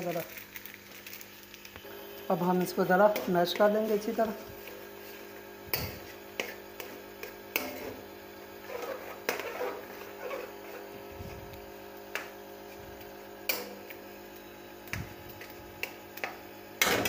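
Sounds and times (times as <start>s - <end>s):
metal spoon scraping pan: 6.0s - 8.0s, 8.6s - 11.0s.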